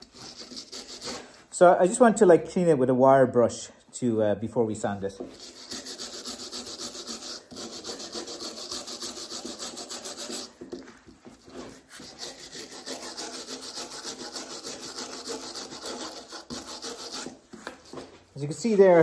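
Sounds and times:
wire brush scrubbing wood: 0:05.3 - 0:19.0.

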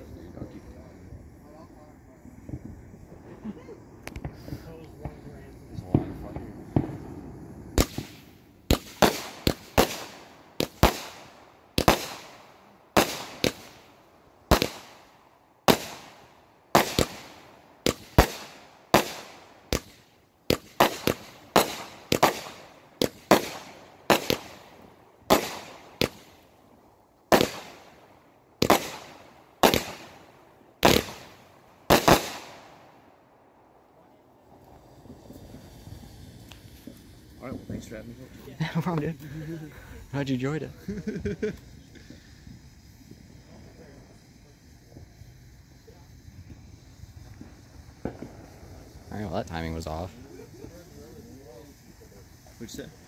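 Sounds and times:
fireworks bursting with sharp bangs: 0:00.0 - 0:53.0.

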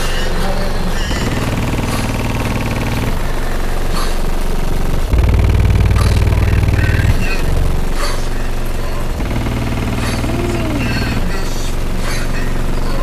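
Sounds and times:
subwoofer deep bass notes: 0:01.1 - 0:03.3, 0:04.8 - 0:08.0, 0:09.0 - 0:11.5
buzzing rattle: 0:04.9 - 0:08.1, 0:08.9 - 0:11.7.

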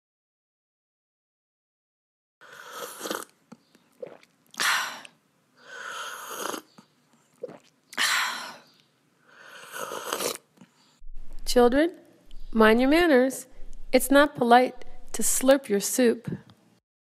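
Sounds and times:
soup being slurped: 0:02.4 - 0:05.1, 0:06.0 - 0:07.8, 0:09.4 - 0:10.5.

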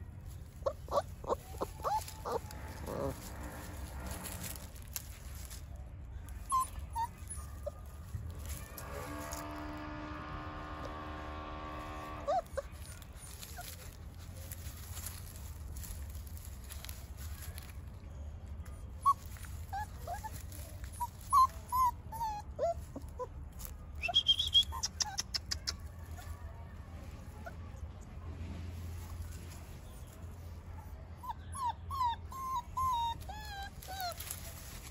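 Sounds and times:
puppies whimpering: 0:00.5 - 0:04.9, 0:06.4 - 0:09.1, 0:12.0 - 0:14.6, 0:18.9 - 0:26.3, 0:31.2 - 0:34.9.

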